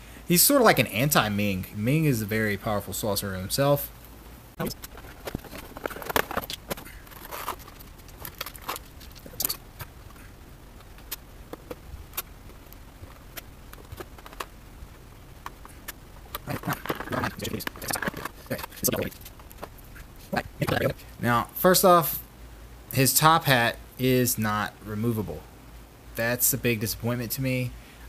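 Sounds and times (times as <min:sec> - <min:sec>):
plastic packaging clicks and scrapes: 0:04.6 - 0:14.5, 0:15.4 - 0:19.8.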